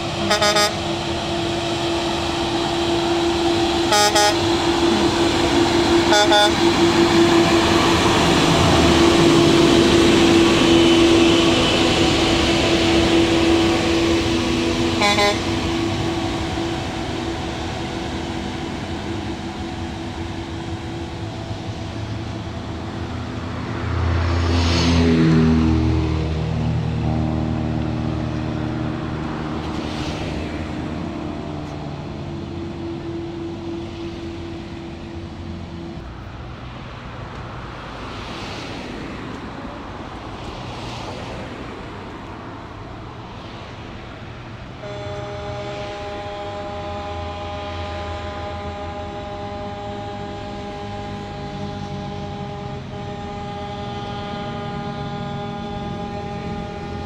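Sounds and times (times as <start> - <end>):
road traffic noise: 0.0 - 57.0
road vehicle passing: 0.0 - 57.0
short horn toot: 0.2 - 0.8, 3.8 - 21.0, 44.8 - 57.0.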